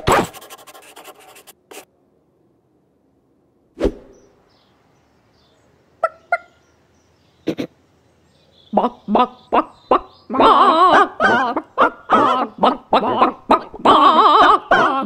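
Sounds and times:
scratchy rasp: 0.0s - 1.9s
chicken-like clucks: 6.0s - 6.6s, 8.7s - 15.0s.

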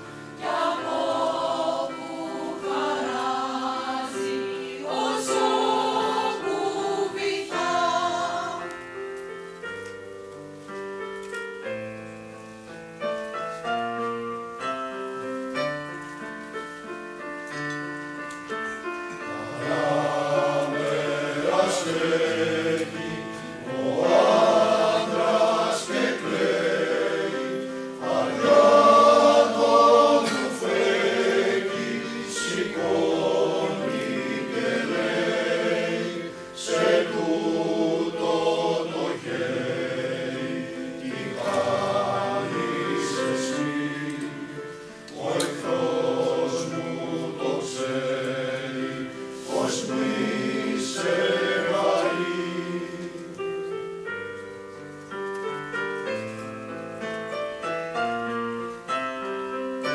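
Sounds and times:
choir singing: 0.0s - 9.0s, 18.7s - 54.4s
piano accompaniment: 0.0s - 59.9s.

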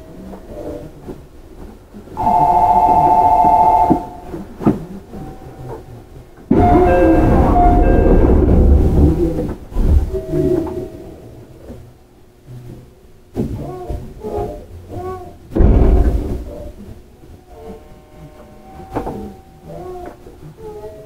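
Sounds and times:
electronic departure signal ringing: 2.2s - 4.4s, 6.5s - 8.6s
ringing tones: 2.2s - 4.4s, 6.5s - 8.9s
low rumble: 6.5s - 11.8s.

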